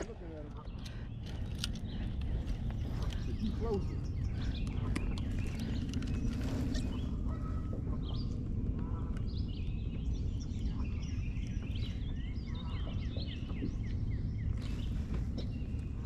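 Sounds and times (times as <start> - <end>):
birds singing and calling: 0.0 - 16.0
steady low rumble: 0.0 - 16.0.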